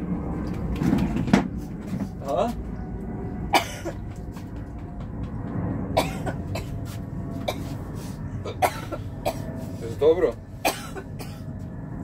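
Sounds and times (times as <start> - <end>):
woman coughing: 3.5 - 4.0, 6.0 - 6.7, 8.5 - 9.4, 10.6 - 11.4.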